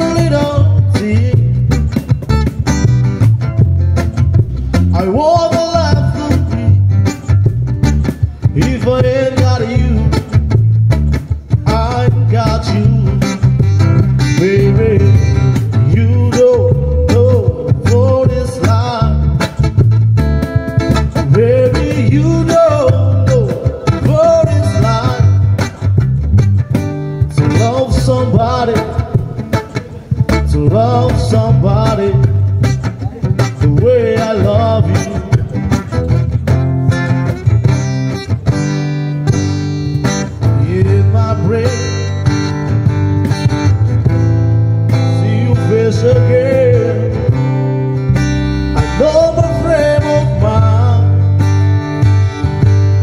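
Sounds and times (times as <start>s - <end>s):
man singing: 0.0s - 2.1s, 4.7s - 7.2s, 8.0s - 10.6s, 11.4s - 19.6s, 21.0s - 26.0s, 27.2s - 36.1s, 40.0s - 42.6s, 44.9s - 47.8s, 48.6s - 51.4s
hand-played cajon: 0.0s - 53.0s
strummed acoustic guitars: 0.0s - 53.0s.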